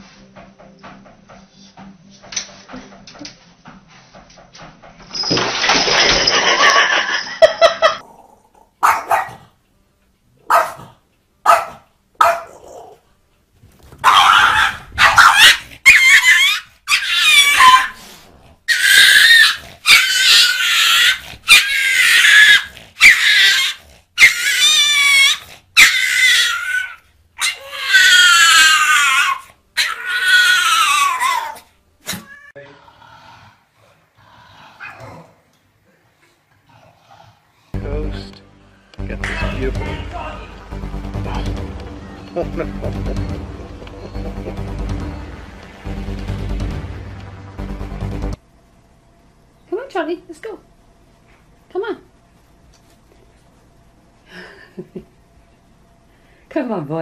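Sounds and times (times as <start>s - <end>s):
dog growling: 8.0s - 8.8s, 32.6s - 35.6s, 36.6s - 37.8s
high squealing cries: 14.1s - 18.0s, 18.7s - 31.6s.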